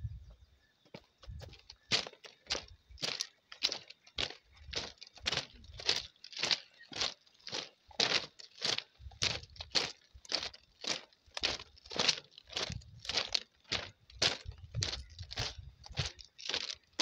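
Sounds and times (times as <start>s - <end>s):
footsteps on steel grating: 0.8s - 17.0s.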